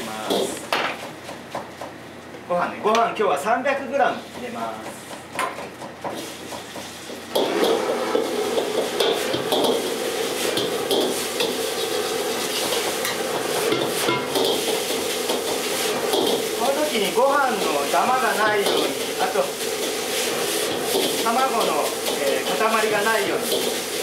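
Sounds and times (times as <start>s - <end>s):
rice sizzling in a wok: 6.1s - 24.0s.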